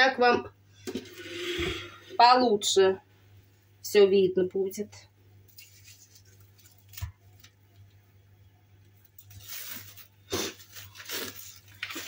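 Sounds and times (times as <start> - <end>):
rustling: 5.5 - 7.5, 9.2 - 12.0.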